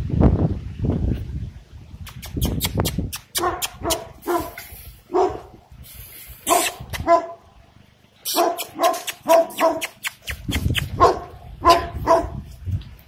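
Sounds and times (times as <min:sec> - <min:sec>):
dog barking: 0:03.4 - 0:05.6, 0:06.5 - 0:07.4, 0:08.3 - 0:10.0, 0:10.9 - 0:12.5.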